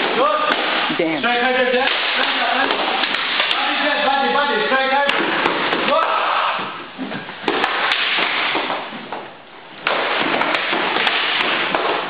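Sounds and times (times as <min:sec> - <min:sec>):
sticks clacking: 0:01.8 - 0:03.8, 0:07.4 - 0:12.0.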